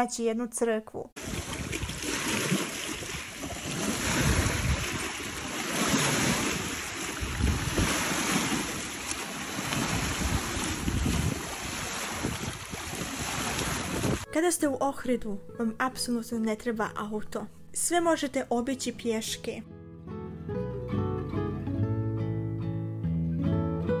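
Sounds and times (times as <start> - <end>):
small waves on a pebble shore: 1.2 - 14.2
wind buffeting microphone: 1.2 - 14.3.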